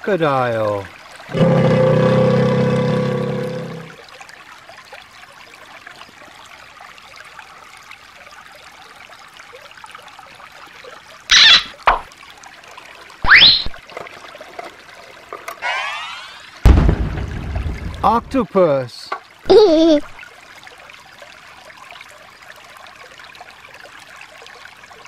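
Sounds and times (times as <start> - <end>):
stream trickling over stones: 0.0 - 25.0
short burst: 15.6 - 17.4.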